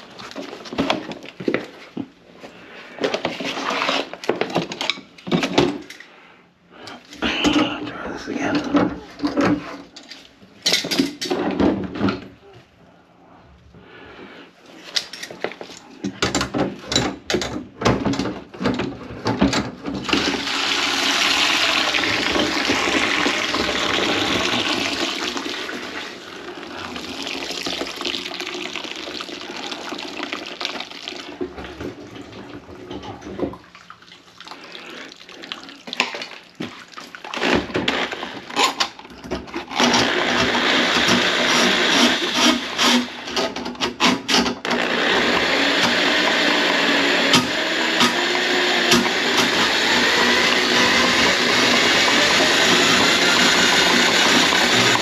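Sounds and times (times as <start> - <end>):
knocks and clatter of handling: 3.0 - 6.1, 8.5 - 12.4, 14.8 - 20.2
water rushing through drain pipes: 18.7 - 37.4, 45.2 - 55.0.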